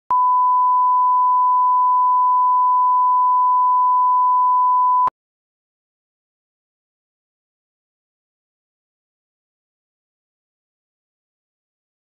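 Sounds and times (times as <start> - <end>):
steady test tone beep: 0.1 - 5.1.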